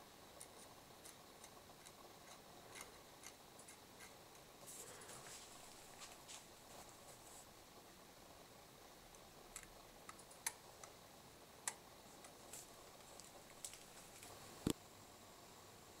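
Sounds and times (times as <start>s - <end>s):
faint clicks and ticks: 0.3s - 4.5s, 9.1s - 11.0s, 11.6s - 14.8s.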